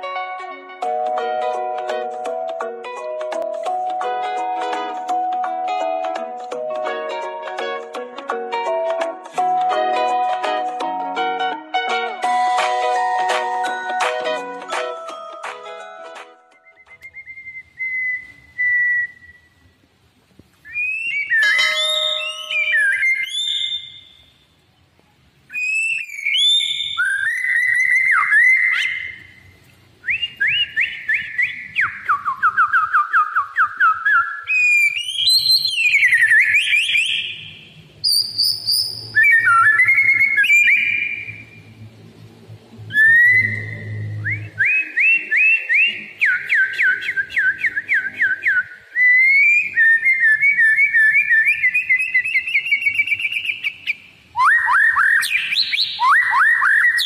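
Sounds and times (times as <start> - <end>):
songbird whistling and trilling: 16.6 - 19.7, 20.6 - 24.6, 25.5 - 41.7, 42.9 - 57.0.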